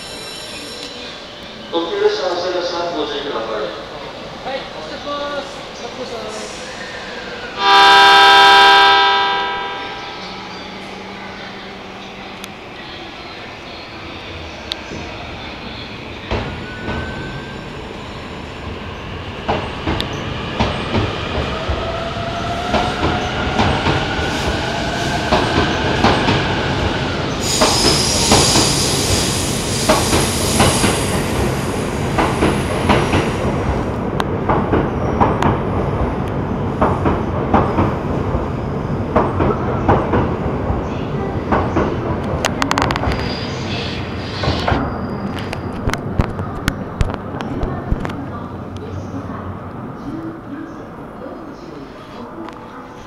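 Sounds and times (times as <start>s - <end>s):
high wheel squeal: 0.0s - 1.3s, 43.2s - 45.8s.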